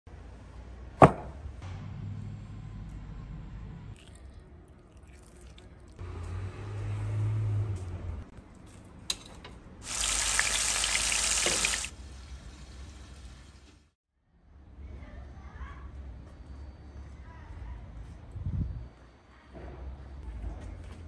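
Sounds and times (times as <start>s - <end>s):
meat sizzling: 9.8s - 13.7s.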